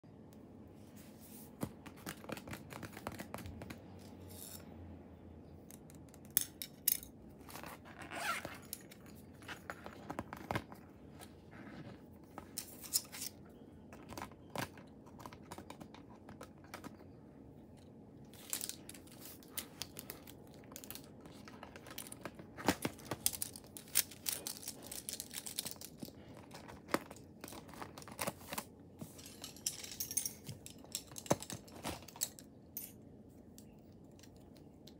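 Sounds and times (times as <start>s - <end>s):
plastic taps clicks and crinkles: 1.6s - 4.0s, 13.9s - 17.2s, 18.4s - 29.7s.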